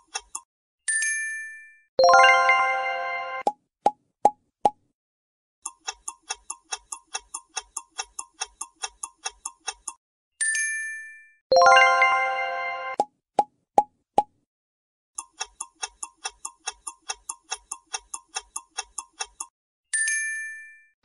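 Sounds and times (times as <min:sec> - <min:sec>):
clock ticking: 0:00.0 - 0:00.5, 0:05.6 - 0:10.0, 0:15.2 - 0:19.5
pop sound effect: 0:03.4 - 0:04.8, 0:12.9 - 0:14.4.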